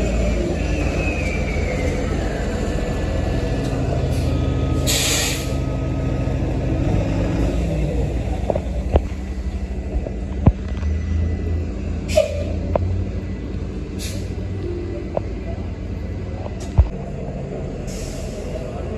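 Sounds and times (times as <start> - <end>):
bus engine rumble: 0.0 - 18.9
air brake hiss: 4.1 - 5.6, 14.0 - 14.3, 17.9 - 18.6.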